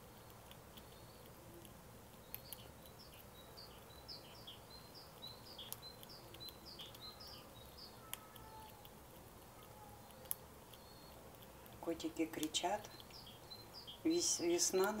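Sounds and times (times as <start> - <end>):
faint high bird chirps: 2.2 - 8.9, 9.5 - 11.3, 12.8 - 15.0.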